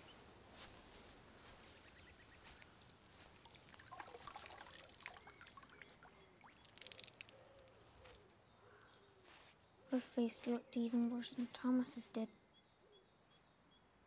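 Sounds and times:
water splashing in a bucket: 3.2 - 7.7.

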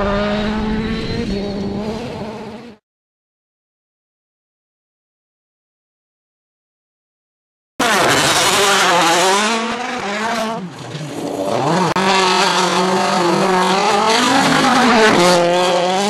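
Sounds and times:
rally car engine revving: 0.0 - 2.8, 7.8 - 16.0.

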